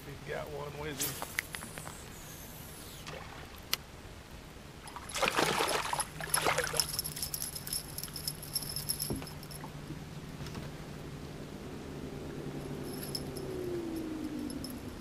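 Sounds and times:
steady low hum: 0.0 - 15.0
fish splashing at surface: 4.9 - 6.8
metal lure jingling and clicking: 4.9 - 9.7, 12.8 - 15.0.

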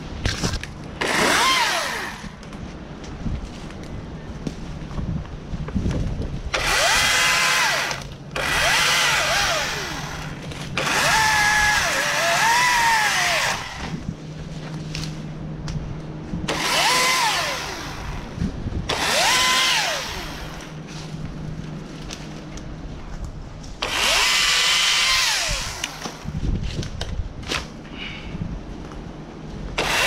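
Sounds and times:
chainsaw motor whine cutting limbs: 0.0 - 2.5, 6.5 - 15.4, 16.4 - 22.7, 23.7 - 27.8, 29.7 - 30.0.

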